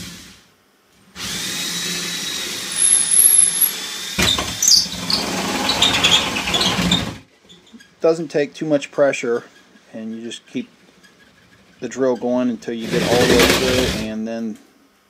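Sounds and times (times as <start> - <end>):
cordless drill motor whirring: 1.2 - 5.0
high squeal: 2.7 - 7.0
blades scraping drywall: 12.7 - 14.2.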